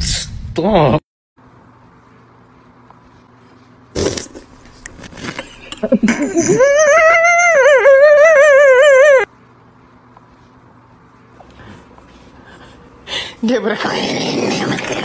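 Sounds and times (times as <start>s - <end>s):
cartoon voice wailing: 6.2s - 9.3s.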